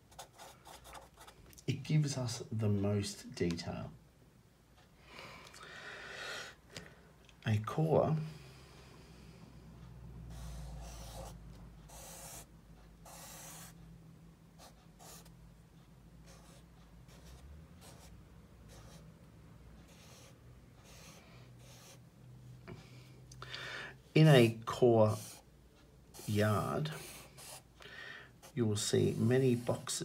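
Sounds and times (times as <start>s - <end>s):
marker scratching on paper: 0.0s - 1.3s, 10.3s - 13.8s, 14.6s - 15.3s, 16.3s - 19.1s, 19.8s - 22.0s, 25.0s - 25.4s, 26.1s - 27.7s
faint low hum: 6.7s - 30.0s.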